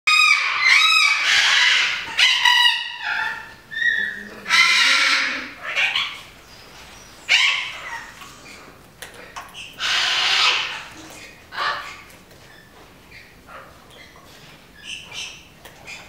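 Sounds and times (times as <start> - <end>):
macaws squawking: 0.1 - 6.3, 9.6 - 12.1.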